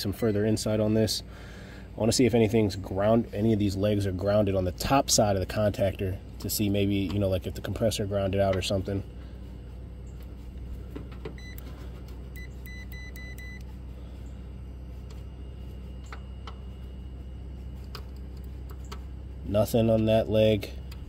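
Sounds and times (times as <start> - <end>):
steady low hum: 0.0 - 21.0
high electronic beeps: 11.4 - 11.6, 12.3 - 13.6.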